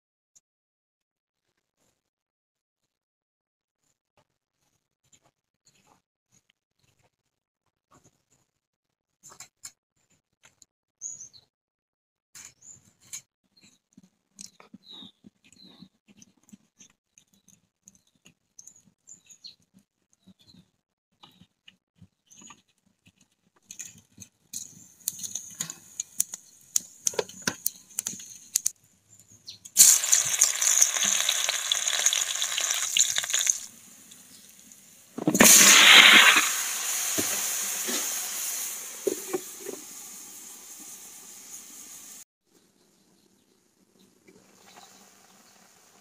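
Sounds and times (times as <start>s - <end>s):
hot oil spitting and popping: 23.6s - 28.8s, 29.6s - 42.2s
loud sizzling in pan: 29.8s - 42.2s
vegetables thumping into pan: 35.2s - 38.2s.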